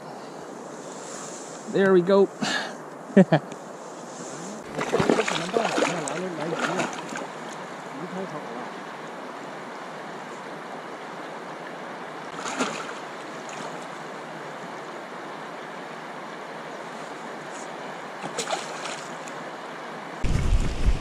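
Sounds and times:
shallow river rushing: 3.6s - 21.0s
water splashes: 4.4s - 8.8s, 12.3s - 14.1s, 18.2s - 19.4s
wind rumble on microphone: 20.2s - 21.0s.

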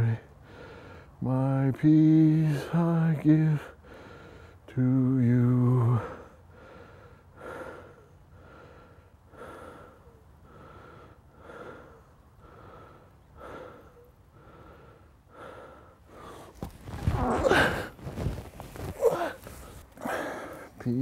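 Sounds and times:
man panting: 0.4s - 1.2s, 3.7s - 4.6s, 5.9s - 16.6s, 17.3s - 18.0s, 18.8s - 20.8s
body tumbling through grass: 16.5s - 19.9s.

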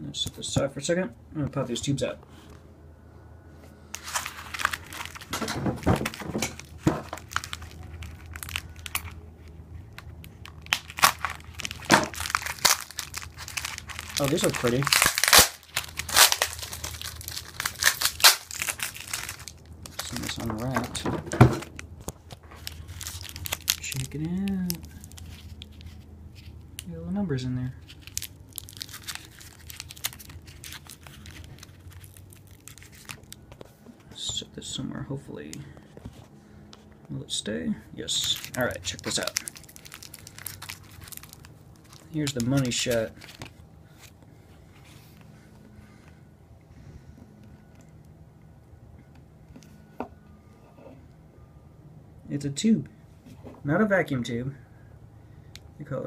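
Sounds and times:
packaging tearing: 3.9s - 9.2s, 9.9s - 21.0s, 21.6s - 26.5s, 27.8s - 33.4s, 38.1s - 43.5s
packaging crinkling and rustling: 3.9s - 26.9s, 27.7s - 33.8s, 38.1s - 45.3s.

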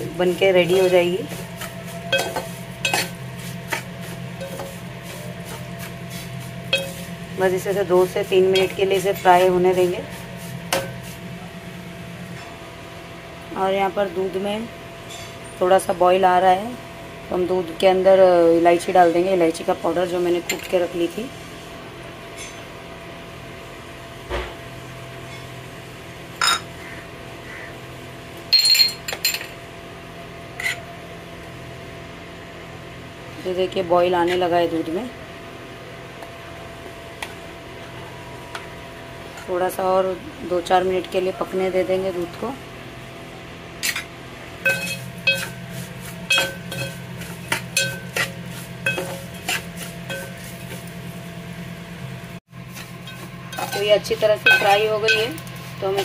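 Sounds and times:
spoon scraping a pan: 0.6s - 7.1s, 44.7s - 51.0s, 52.7s - 56.0s
spoon clinking on metal pot: 2.1s - 3.1s, 44.7s - 45.6s, 46.3s - 48.3s, 48.9s - 50.4s, 53.1s - 55.4s
spoon clinking against pan: 46.3s - 48.3s.

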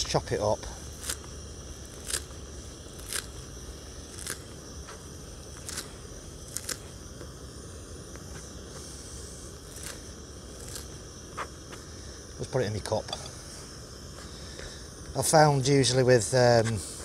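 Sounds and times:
outdoor background hiss: 0.0s - 17.0s.

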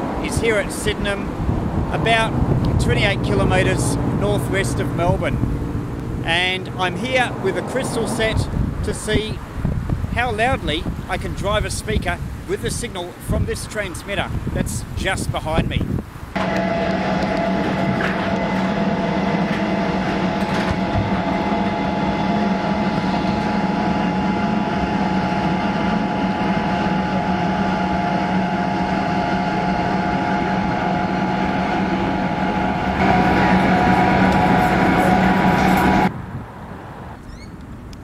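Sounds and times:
car road and engine drone: 0.0s - 38.0s
low hum: 15.9s - 36.1s.

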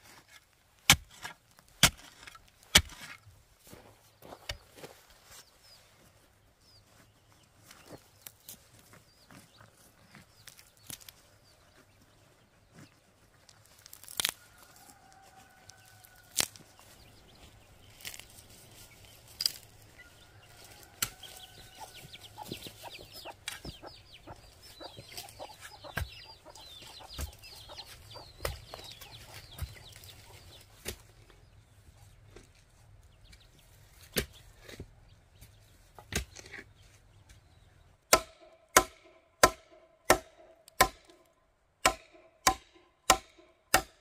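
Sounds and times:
chickens clucking: 14.5s - 37.8s.

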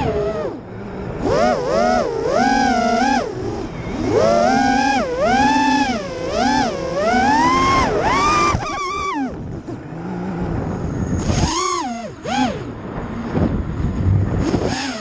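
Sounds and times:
drone motors whining: 0.0s - 15.0s
wind rush: 7.6s - 11.6s, 12.4s - 15.0s.

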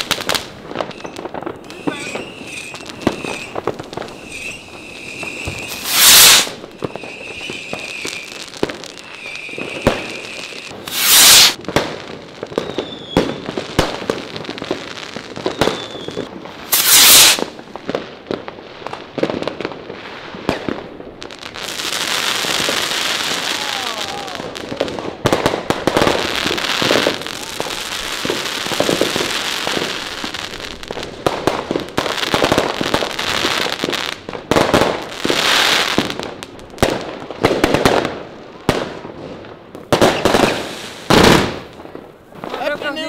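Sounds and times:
fireworks crackling and popping: 0.0s - 43.0s
loud firework bursts: 0.0s - 43.0s
thin high whistle: 0.9s - 8.4s, 9.0s - 11.6s, 15.4s - 16.2s.

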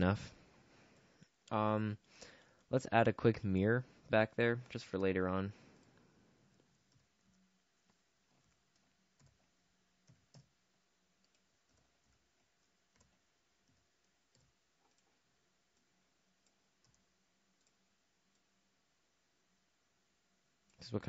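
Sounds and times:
computer mouse and keyboard clicks: 5.7s - 10.6s, 11.2s - 18.5s.

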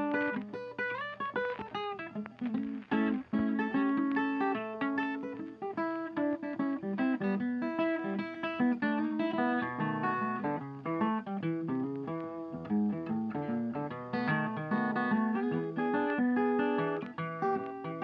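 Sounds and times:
plucked guitar tune: 0.0s - 18.0s.

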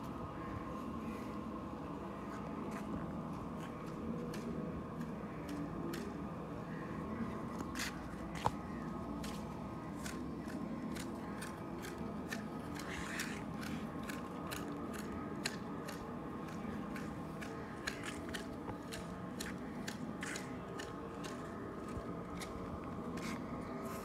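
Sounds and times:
hedge shears snipping stems: 10.0s - 23.4s.

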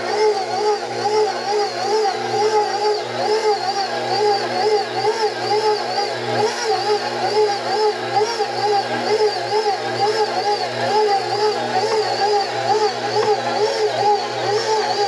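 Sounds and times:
stand mixer kneading dough: 0.0s - 15.0s.

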